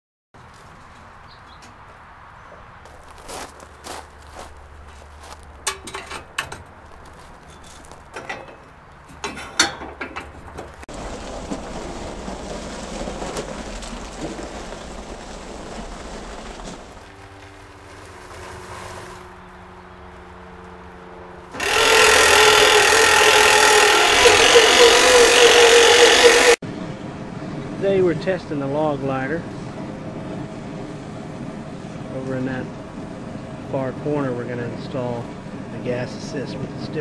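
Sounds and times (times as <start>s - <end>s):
footsteps on gravel: 0.4s - 8.2s, 10.9s - 19.2s.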